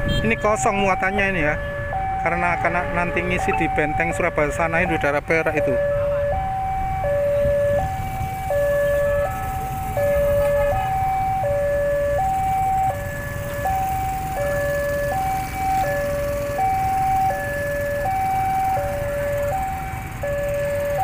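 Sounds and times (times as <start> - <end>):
level-crossing two-tone alarm: 0.2 - 21.0.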